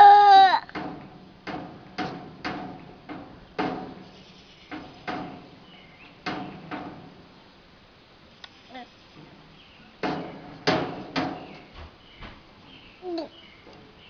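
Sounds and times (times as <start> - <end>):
metal cabinet doors clanking: 0.7 - 7.3, 9.2 - 11.9.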